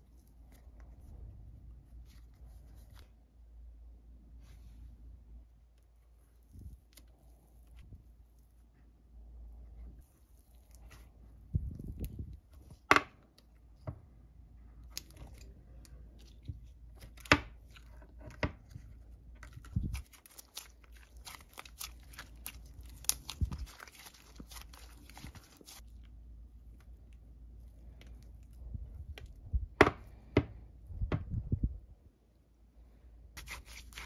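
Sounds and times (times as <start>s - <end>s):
sticky slime crackling and popping: 19.4s - 25.9s, 33.4s - 34.0s.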